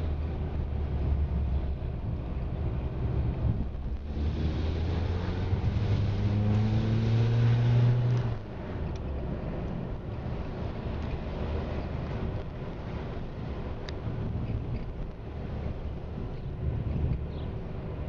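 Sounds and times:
low steady rumble: 0:00.0 - 0:18.0
vehicle engine revving: 0:03.0 - 0:08.6.

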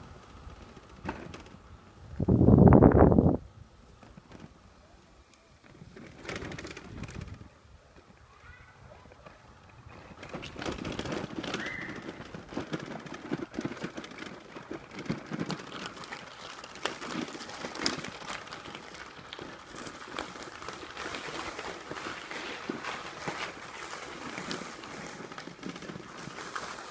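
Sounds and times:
footsteps crunching on gravel: 0:14.8 - 0:26.9.

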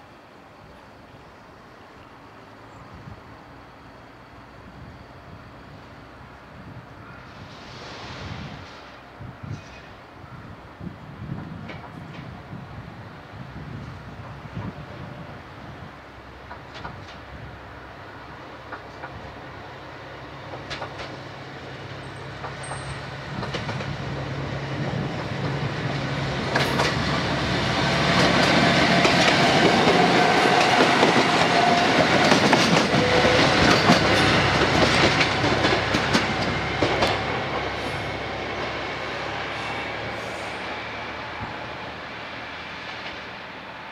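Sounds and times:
diesel railcar engine running: 0:13.2 - 0:43.9
wheels clacking over rail joints: 0:20.5 - 0:21.2, 0:25.2 - 0:37.8.

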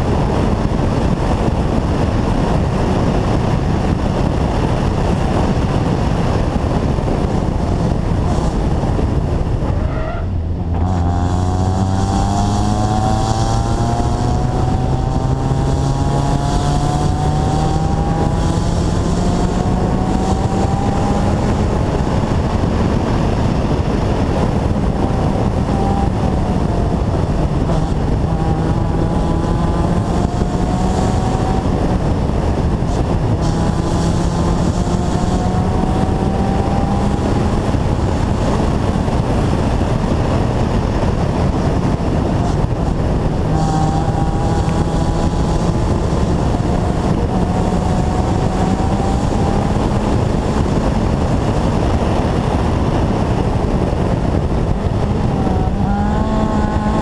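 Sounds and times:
car engine revving through gears: 0:00.0 - 0:57.0
road and wind noise: 0:00.0 - 0:57.0.

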